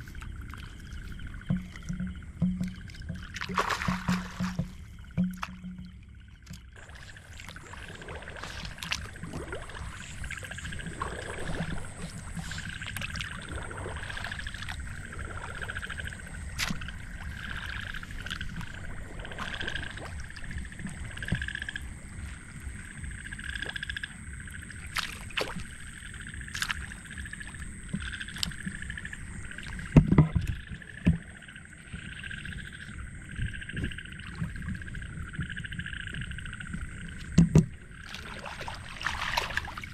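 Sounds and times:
frogs calling: 0:00.0 - 0:39.9
sharp knocks: 0:01.5 - 0:05.9.

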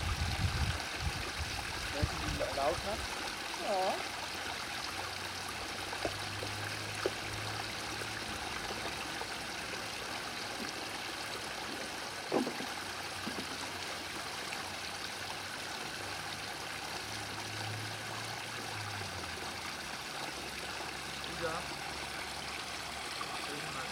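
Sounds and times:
fountain water trickling and splashing: 0:00.0 - 0:23.9.

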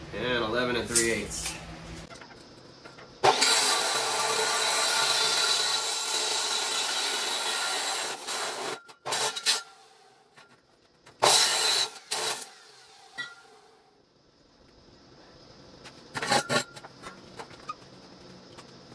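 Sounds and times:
chop saw cutting steel: 0:03.2 - 0:09.9, 0:11.2 - 0:13.5.

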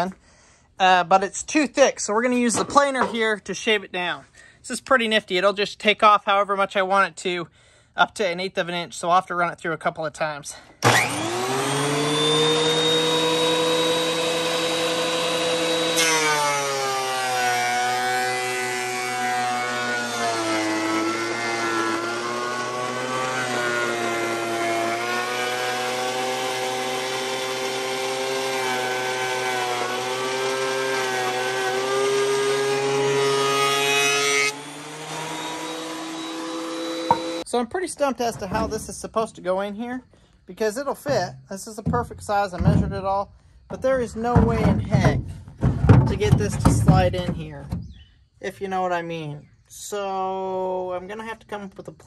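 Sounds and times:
planer cutting board: 0:10.8 - 0:37.4
thickness planer motor running: 0:10.8 - 0:37.4.

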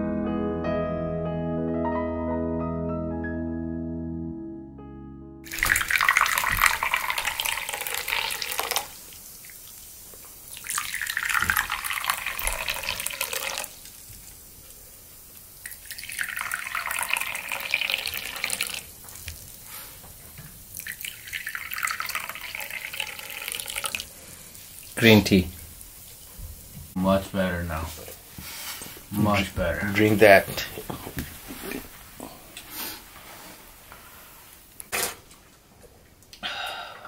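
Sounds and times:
tea pouring into cups: 0:05.5 - 0:20.0, 0:20.6 - 0:26.2.

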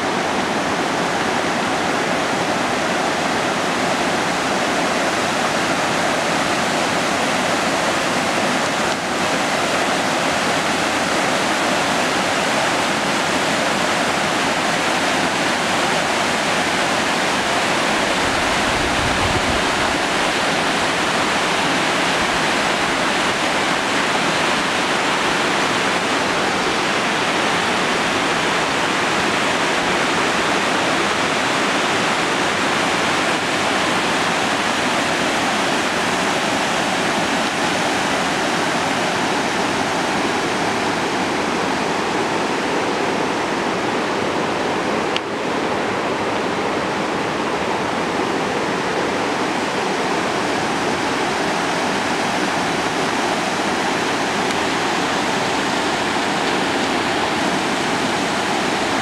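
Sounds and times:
river water rushing over stones: 0:00.0 - 0:59.0.

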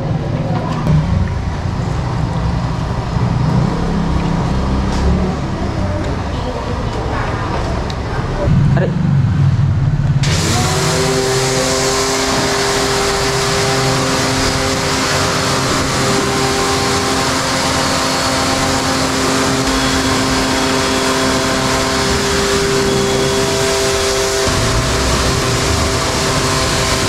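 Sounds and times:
pressure washer motor whine: 0:10.2 - 0:27.0
water jet hissing: 0:10.2 - 0:27.0.

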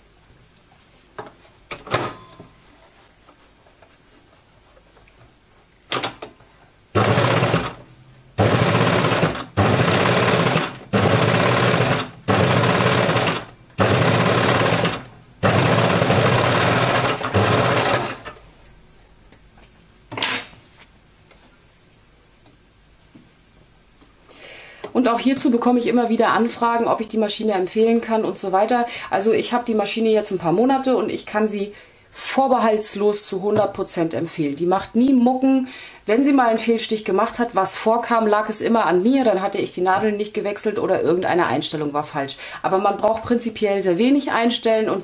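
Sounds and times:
sewing machine running: 0:07.0 - 0:07.8, 0:08.4 - 0:18.4.

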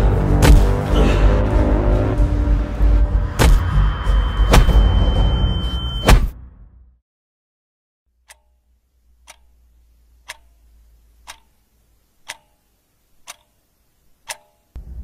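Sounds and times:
clock ticking: 0:08.2 - 0:14.8
faint low hum: 0:08.2 - 0:15.0.

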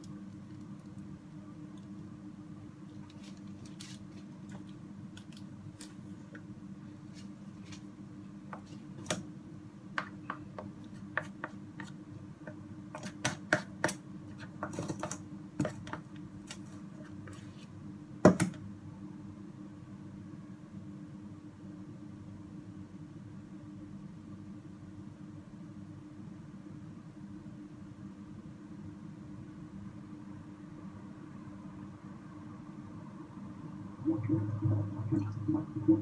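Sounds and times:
low hum: 0:32.5 - 0:36.0.

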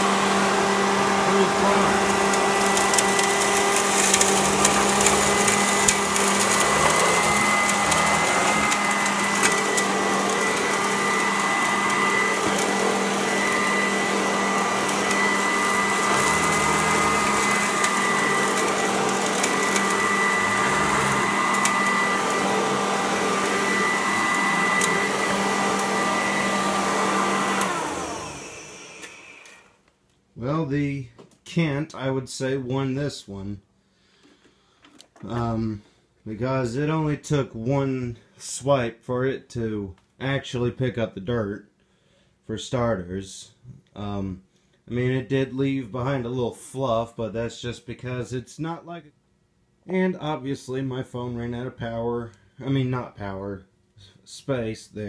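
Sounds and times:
vacuum motor winding down: 0:00.0 - 0:29.7
vacuum cleaner motor whine: 0:00.0 - 0:29.8.

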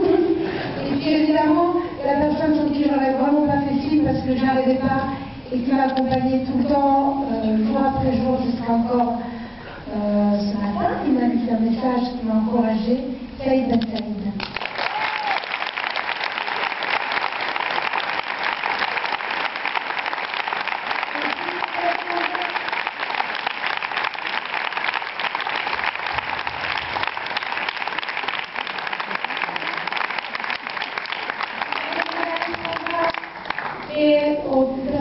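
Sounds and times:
large audience applauding: 0:14.5 - 0:33.9.

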